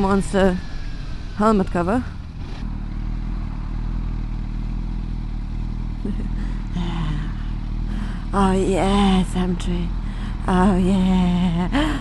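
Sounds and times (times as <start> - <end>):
motorcycle engine running: 0.0 - 12.0
road and wind noise: 0.0 - 12.0.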